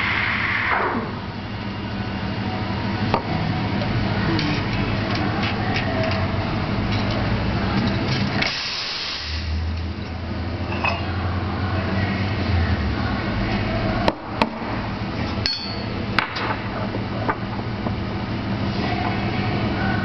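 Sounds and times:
steady low hum: 0:00.0 - 0:20.0
steam wand hissing: 0:08.4 - 0:09.6.

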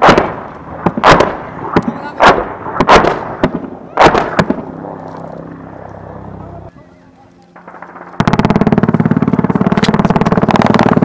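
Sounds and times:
sharp loud gunshots: 0:00.0 - 0:05.0, 0:07.6 - 0:11.0
low steady drone: 0:00.0 - 0:11.0.

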